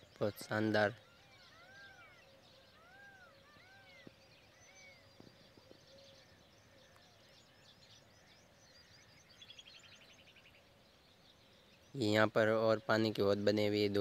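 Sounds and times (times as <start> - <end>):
small bird chirps: 0.0 - 14.0
bird repeating arching call: 0.5 - 5.1.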